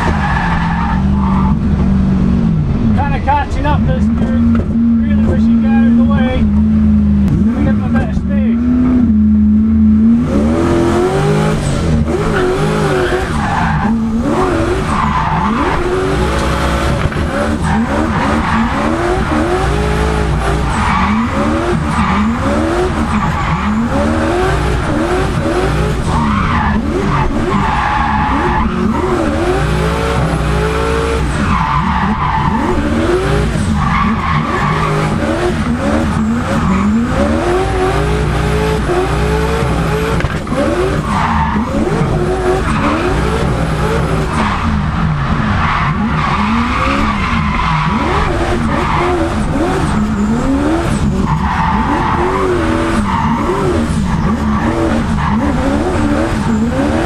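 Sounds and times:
car engine revving: 0.0s - 57.0s
tyres squealing: 12.2s - 30.1s, 45.6s - 57.0s.

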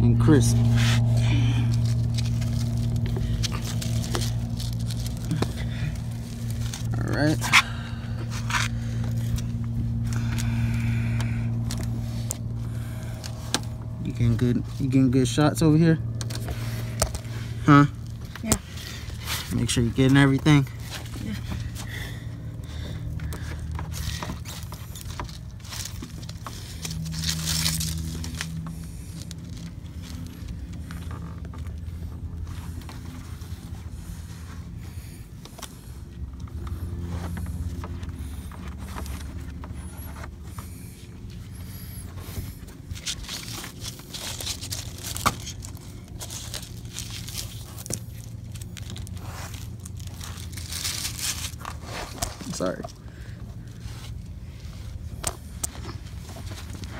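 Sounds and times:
low rumble: 0.0s - 52.0s
rubber scraping and tearing: 23.4s - 52.9s.

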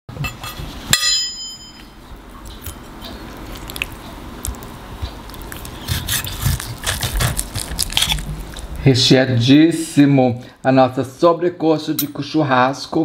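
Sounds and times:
bright ding: 0.4s - 2.0s
knife and fork scraping a plate: 5.8s - 8.2s.

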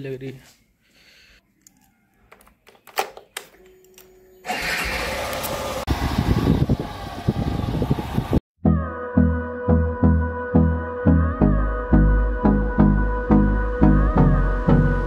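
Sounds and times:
wind rushing over microphone: 5.7s - 8.4s.

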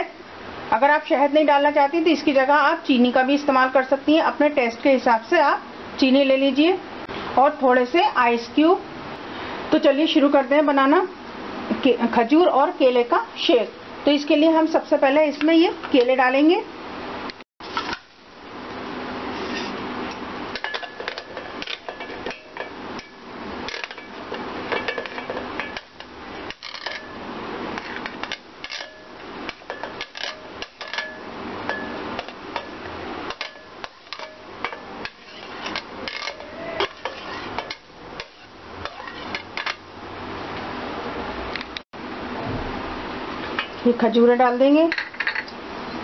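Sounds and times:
metal spoon clinking on plate and jar: 20.6s - 26.0s, 28.2s - 39.8s.

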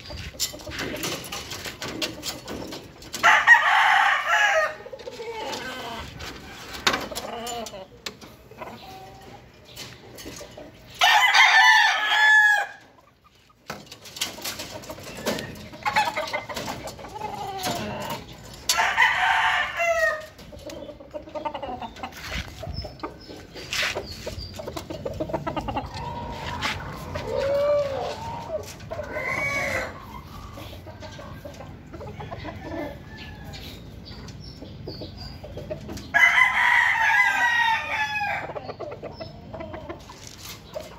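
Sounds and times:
roosters crowing: 3.0s - 8.0s, 10.9s - 13.0s, 15.1s - 20.5s, 25.3s - 30.6s, 32.0s - 33.9s, 36.0s - 40.1s.

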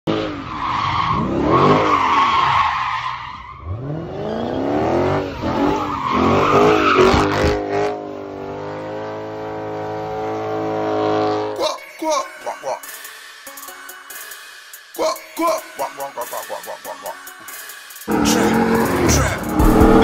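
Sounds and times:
tires squealing: 0.1s - 11.6s
car engine revving: 3.6s - 11.6s, 18.1s - 20.0s.

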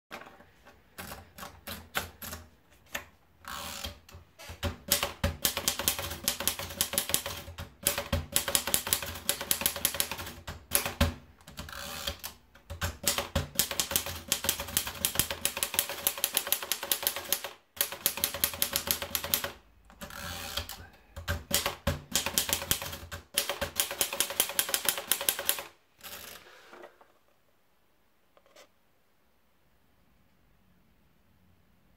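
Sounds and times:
typewriter paper feed clicks: 3.8s - 26.4s
typewriter keystrokes clacking: 3.9s - 26.2s.

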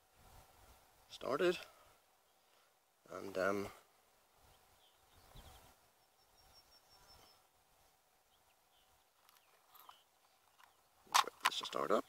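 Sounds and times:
faint bird chirps: 4.4s - 7.6s, 8.2s - 11.1s.

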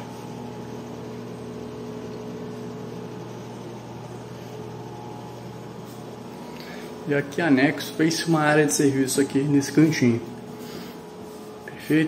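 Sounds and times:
machine hum with low buzz: 0.0s - 12.0s.

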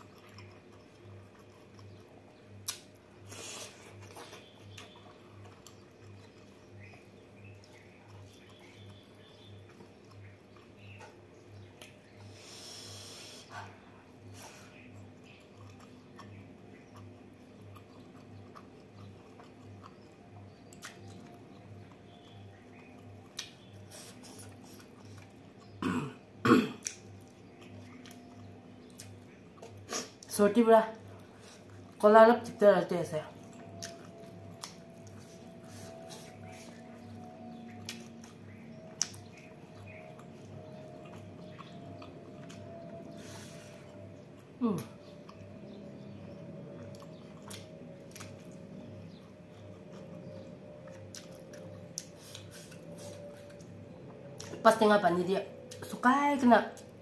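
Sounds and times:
person eating by hand: 0.0s - 30.3s, 33.3s - 54.6s
woman coughing: 25.8s - 26.8s.

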